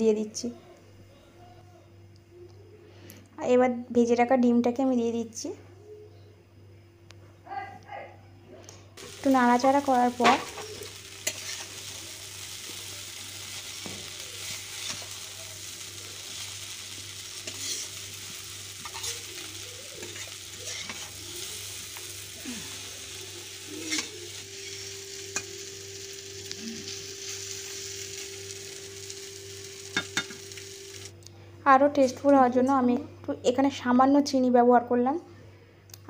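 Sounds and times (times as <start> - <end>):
noodles sizzling in pan: 9.0 - 31.2
metal spatula scraping pan: 10.2 - 11.8, 17.4 - 18.1, 18.8 - 21.5, 23.6 - 25.5.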